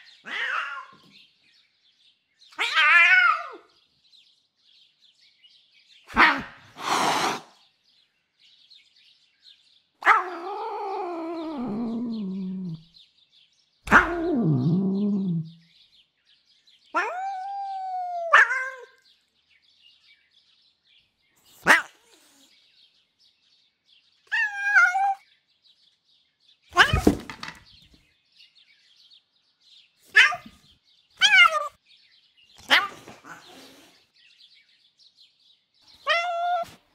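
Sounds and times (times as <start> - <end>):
cat mewling: 0.2 - 1.0, 10.0 - 12.9, 13.9 - 15.6
cat crying: 0.2 - 1.1, 2.5 - 3.7, 10.0 - 12.9, 13.9 - 15.6, 17.0 - 19.0, 24.3 - 25.2, 31.2 - 31.8, 36.0 - 36.8
cat hissing: 6.1 - 7.6, 32.6 - 34.0.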